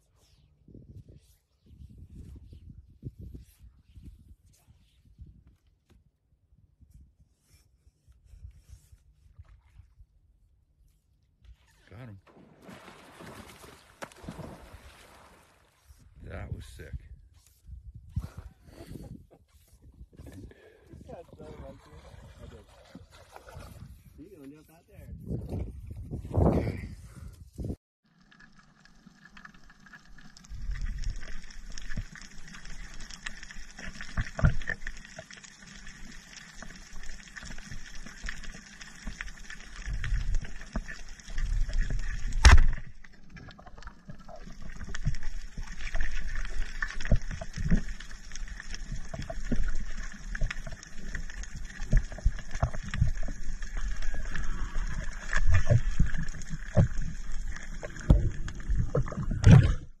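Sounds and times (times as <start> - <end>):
underwater water movement: 11.5 - 16.3, 18.2 - 24.2, 28.1 - 60.0.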